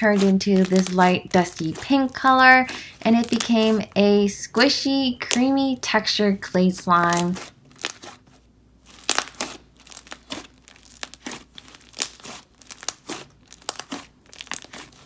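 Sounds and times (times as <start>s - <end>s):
hands squishing slime: 0.0s - 4.0s, 7.0s - 15.0s.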